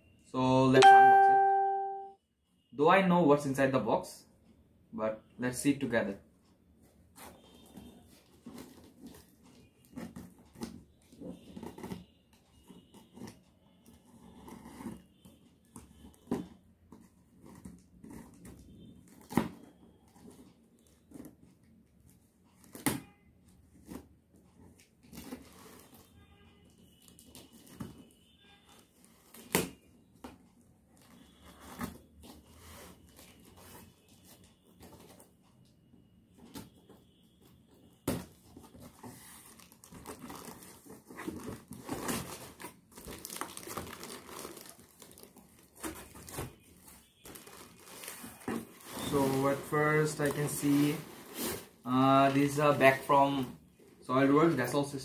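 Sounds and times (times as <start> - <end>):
cardboard rustling and scraping: 7.1 - 13.4, 14.0 - 21.5, 27.2 - 35.3, 36.4 - 52.9.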